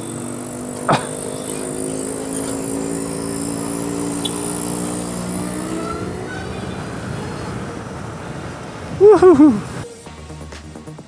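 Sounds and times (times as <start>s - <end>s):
vehicle engine drone: 0.0s - 11.0s
high hiss: 9.0s - 10.9s.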